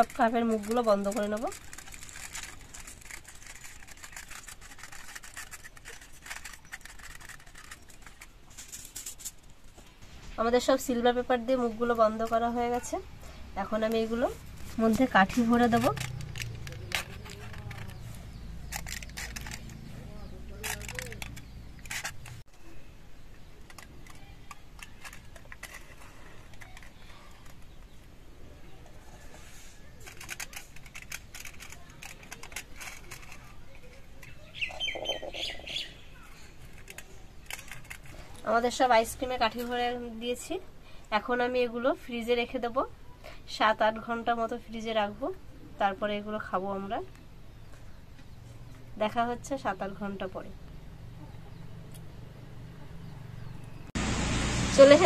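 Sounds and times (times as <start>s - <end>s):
wooden sticks ticking: 0.0s - 9.4s, 14.8s - 22.5s
aluminium foil crinkling: 0.0s - 9.9s, 13.9s - 22.8s, 23.5s - 28.0s, 28.8s - 35.6s, 36.2s - 40.0s.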